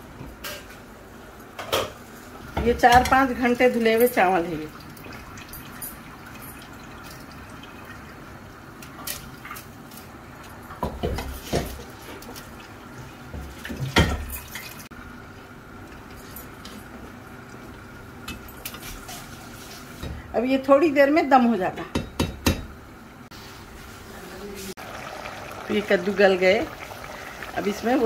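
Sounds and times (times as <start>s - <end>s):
metal spoon knocking on pot: 21.8s - 22.7s
water bubbling in pot: 24.8s - 28.0s.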